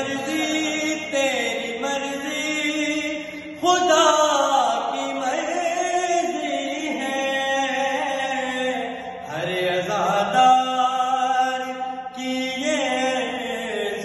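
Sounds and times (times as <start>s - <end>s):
man chanting devotional poem: 0.0s - 14.0s.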